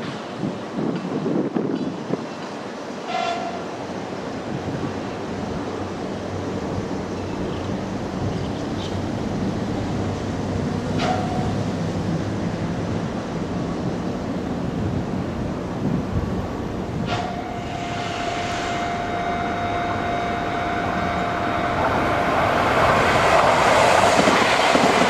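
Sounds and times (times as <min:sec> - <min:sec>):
electric train rumble: 0:00.0 - 0:25.0
train horn blasts: 0:03.1 - 0:03.6, 0:17.1 - 0:22.7.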